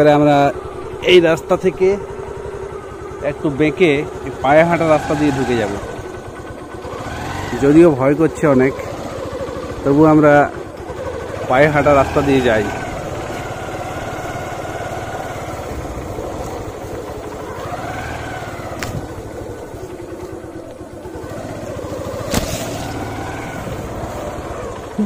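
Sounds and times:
motorcycle engine running: 0.0 - 25.0.

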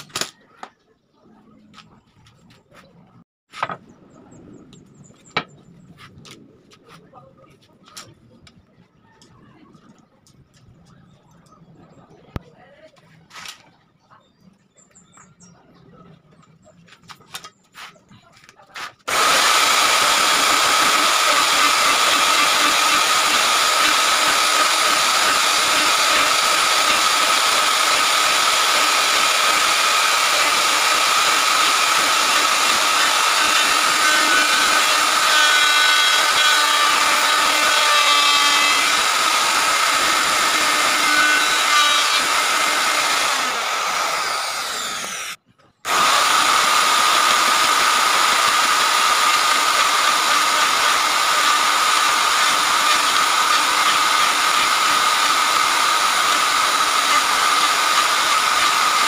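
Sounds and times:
wood router high whine: 19.1 - 59.0.

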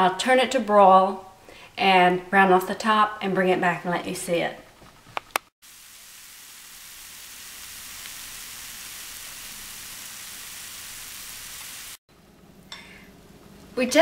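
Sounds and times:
food sizzling: 5.6 - 14.0.

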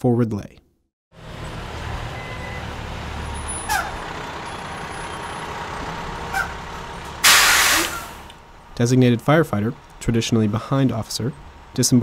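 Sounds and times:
diesel engine running low: 1.1 - 12.0
brake squeaks: 1.3 - 8.8
air brake hiss: 7.2 - 8.3.

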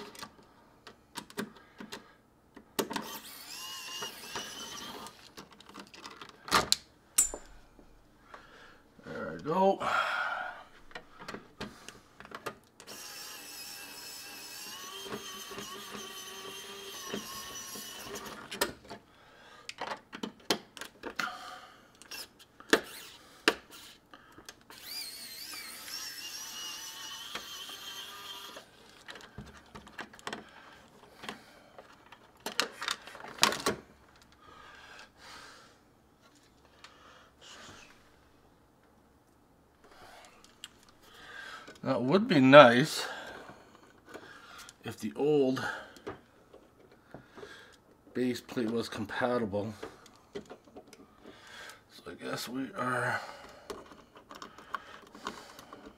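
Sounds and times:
electric screwdriver whine: 3.0 - 5.2, 12.8 - 18.5, 22.0 - 23.8, 24.7 - 28.7.

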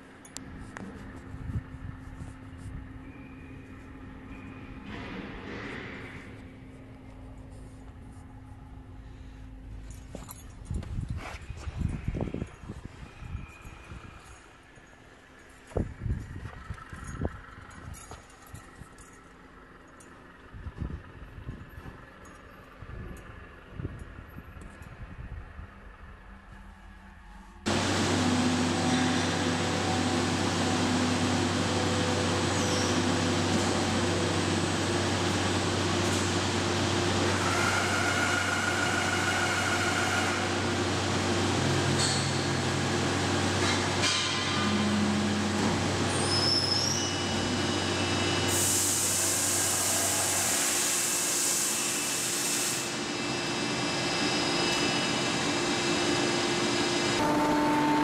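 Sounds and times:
machine tool drone: 0.0 - 10.2, 11.4 - 58.0
high metallic squeals: 2.4 - 5.0, 31.6 - 33.6, 37.2 - 40.8, 46.1 - 52.0
loud hiss: 48.5 - 53.1.

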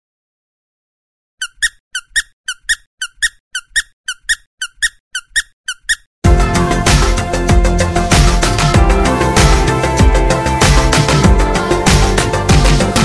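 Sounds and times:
squeaky footsteps: 1.4 - 6.1.

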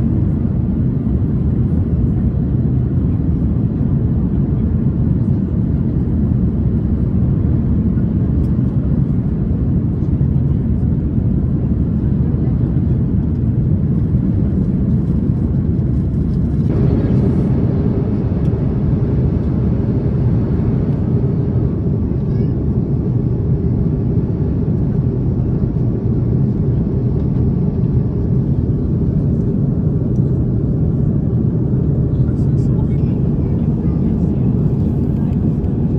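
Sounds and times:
jet engine rumble: 0.0 - 35.9.

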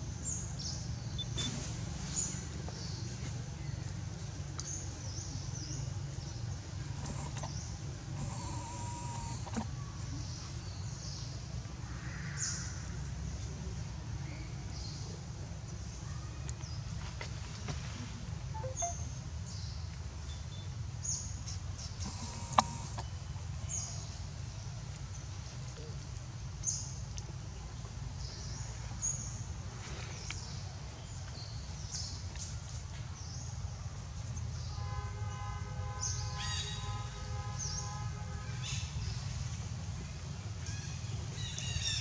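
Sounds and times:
small birds chirping: 0.2 - 11.4, 18.6 - 24.2.

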